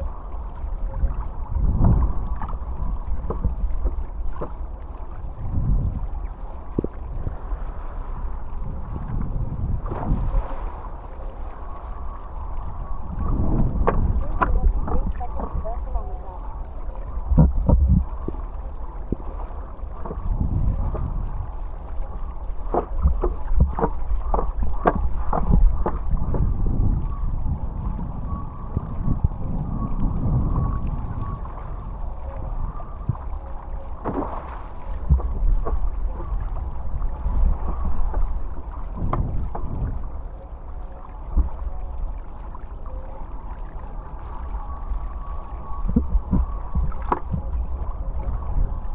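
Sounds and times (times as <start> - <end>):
wind buffeting microphone: 0.0 - 48.9
sharp splashes and knocks: 1.8 - 4.6, 9.8 - 10.8, 13.5 - 15.6, 22.6 - 26.5, 34.0 - 36.7, 45.9 - 47.5
water rushing past board: 6.6 - 12.4, 13.1 - 16.4, 32.7 - 40.3.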